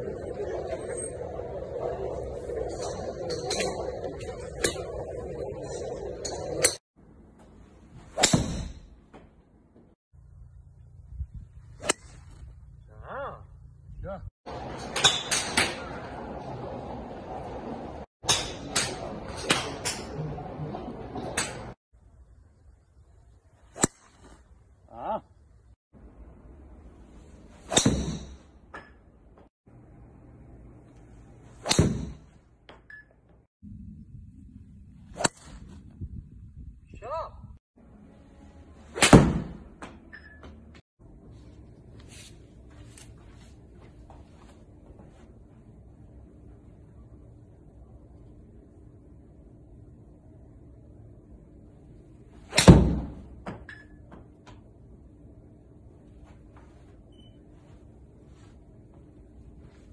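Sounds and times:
golf club striking ball: 27.7s - 29.0s, 31.6s - 32.3s.

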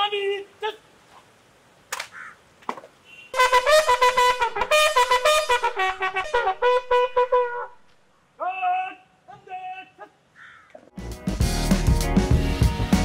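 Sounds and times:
bugle call: 3.1s - 7.8s.

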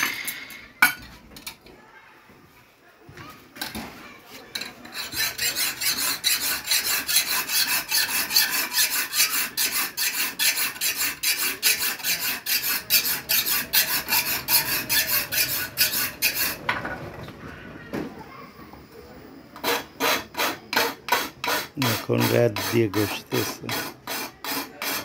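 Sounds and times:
hand file rasping on steel blade: 4.8s - 16.6s, 19.6s - 25.0s.

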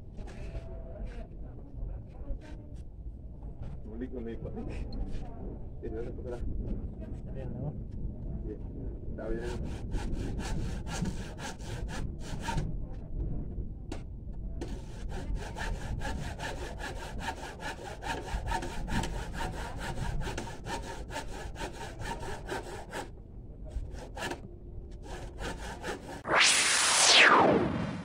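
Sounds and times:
hand saw cutting wood: 9.4s - 12.6s, 14.6s - 23.1s, 23.7s - 26.2s.

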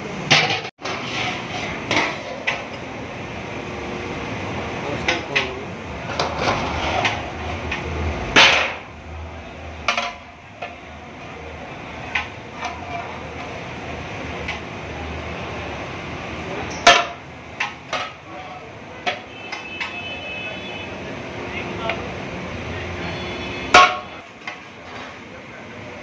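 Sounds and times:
metal ladle clanking on pots: 0.2s - 2.9s, 5.0s - 8.9s, 16.6s - 20.1s, 23.7s - 25.2s.

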